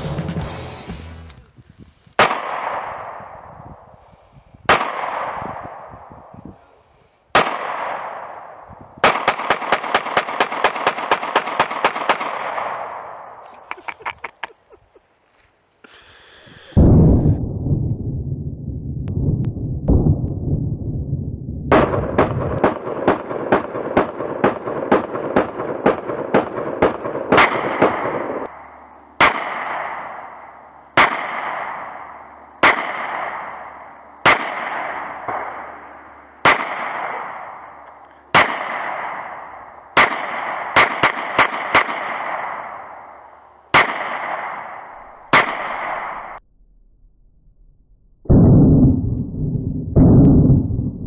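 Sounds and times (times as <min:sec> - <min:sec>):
pistol shots echoing: 0:02.2 - 0:03.4, 0:04.7 - 0:06.1, 0:07.3 - 0:13.4, 0:21.7 - 0:28.5, 0:29.2 - 0:46.4.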